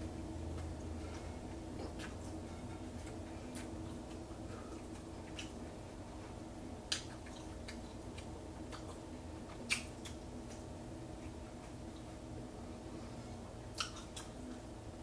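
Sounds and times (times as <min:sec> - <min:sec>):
steady low hum: 0:00.0 - 0:15.0
person chewing with mouth clicks: 0:00.5 - 0:05.6, 0:06.9 - 0:12.2, 0:13.5 - 0:14.7.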